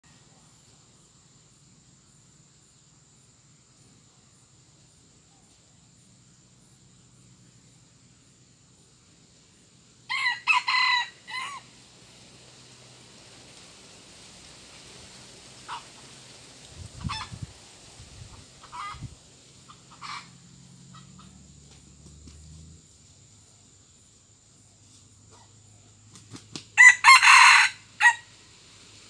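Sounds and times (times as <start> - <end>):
rooster crowing: 10.1 - 11.8, 26.8 - 28.3.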